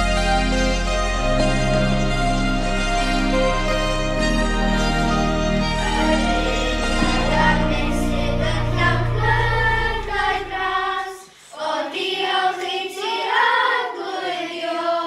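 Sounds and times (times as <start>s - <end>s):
low music bed: 0.0s - 11.2s
children singing together: 4.7s - 15.0s.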